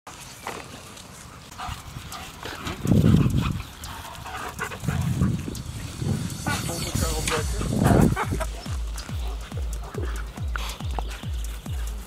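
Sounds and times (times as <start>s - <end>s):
low rumble: 2.6s - 10.6s.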